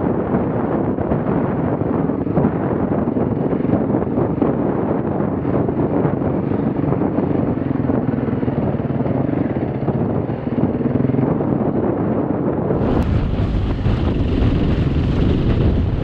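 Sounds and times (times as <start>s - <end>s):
wind noise on microphone: 0.0s - 16.0s
motorcycle engine running: 12.8s - 16.0s.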